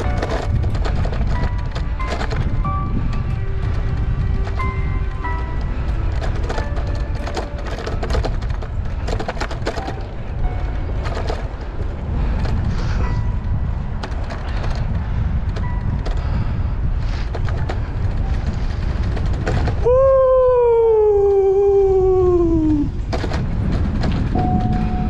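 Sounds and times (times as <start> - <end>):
clicks and rattles: 0.0 - 12.8, 14.0 - 16.5, 17.2 - 19.9, 22.9 - 25.0
wind rumbling on microphone: 0.0 - 25.0
drawn-out falling tone: 19.8 - 23.0.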